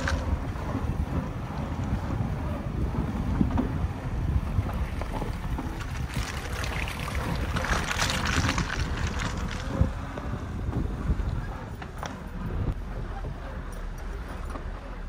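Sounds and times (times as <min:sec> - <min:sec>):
wheel splashing through mud: 0:00.0 - 0:02.1, 0:02.7 - 0:11.1
wind buffeting microphone: 0:00.0 - 0:15.0
tyre rolling over gravel: 0:05.0 - 0:10.0.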